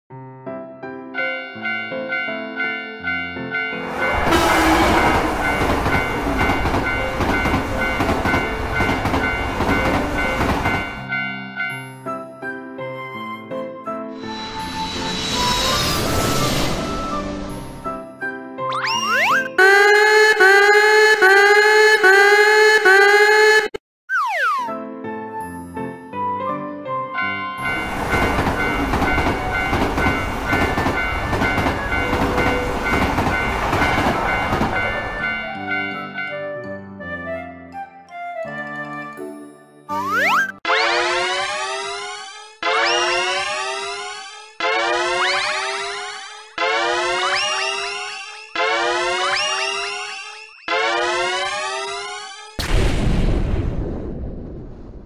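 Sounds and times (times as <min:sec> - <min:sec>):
crossing warning bell dinging: 0:01.2 - 0:11.9, 0:27.2 - 0:36.3
electric train passing: 0:01.6 - 0:11.2, 0:14.2 - 0:17.9, 0:27.6 - 0:36.0.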